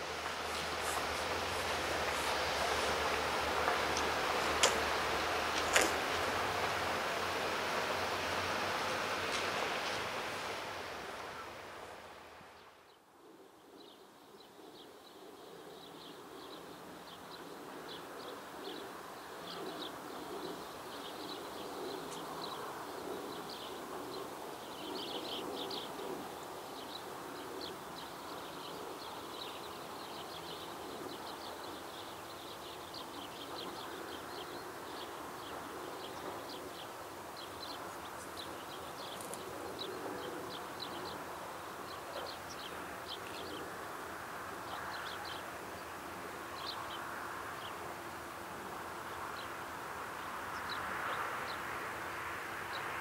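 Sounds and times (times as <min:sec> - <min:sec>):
small birds chirping: 0:19.5 - 0:43.8.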